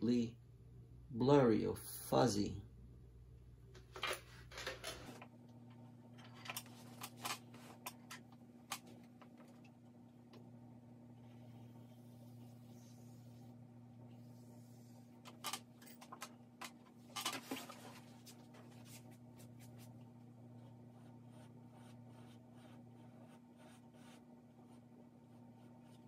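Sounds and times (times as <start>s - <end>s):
steady low hum: 0.0s - 26.0s
drawing stick scratching paper: 20.6s - 26.0s.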